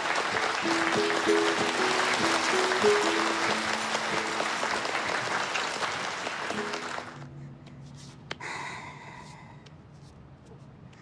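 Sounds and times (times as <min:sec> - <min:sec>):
audience applauding: 0:00.0 - 0:07.3
background music: 0:00.0 - 0:08.2.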